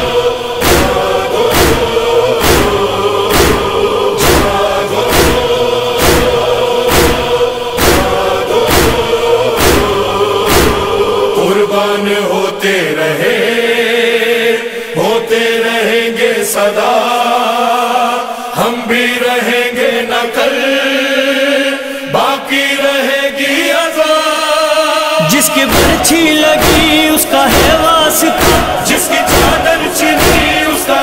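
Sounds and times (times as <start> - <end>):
sharp beats: 0.0 - 11.5, 25.2 - 31.0
men chanting long notes: 0.0 - 31.0.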